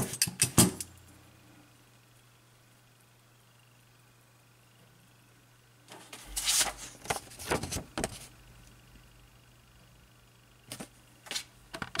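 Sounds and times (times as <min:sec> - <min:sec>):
paper rustling: 0:05.9 - 0:08.3.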